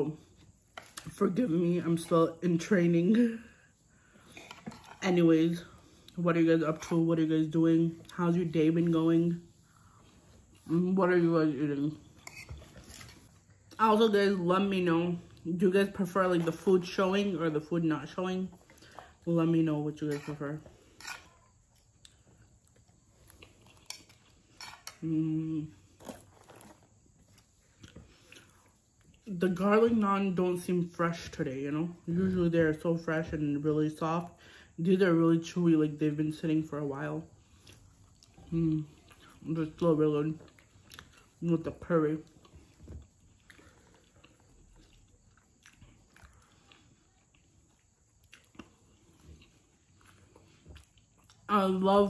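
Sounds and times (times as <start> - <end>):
metal spoon scraping a plate: 12.2 - 13.2, 20.1 - 21.4
faint chewing: 20.2 - 25.0, 25.7 - 29.3, 37.4 - 51.5.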